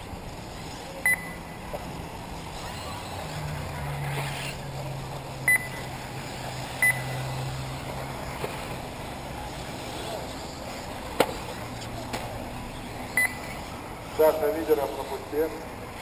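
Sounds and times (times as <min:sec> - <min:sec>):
outdoor background noise: 0:00.0 - 0:16.0
short high electronic beeps: 0:06.8 - 0:07.2, 0:13.2 - 0:13.4.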